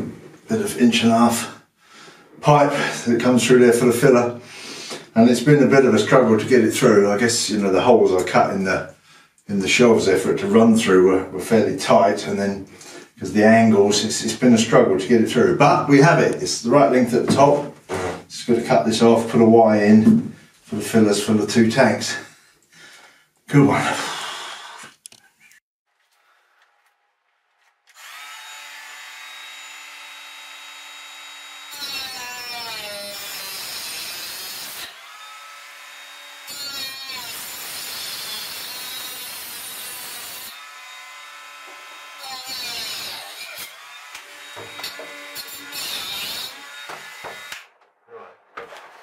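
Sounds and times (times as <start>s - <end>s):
power tool cutting pipe: 27.9s - 47.8s.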